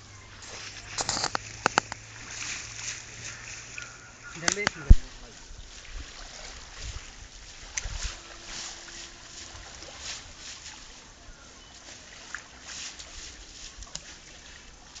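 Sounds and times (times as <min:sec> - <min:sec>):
outdoor rustling and crackles: 0:00.0 - 0:15.0.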